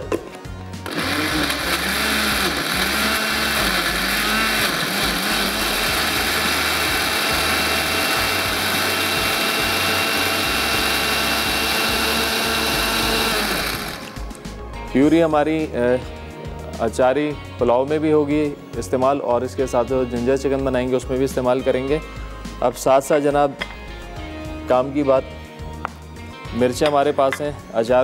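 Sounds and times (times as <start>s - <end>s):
electric blender running: 0.8s - 14.3s.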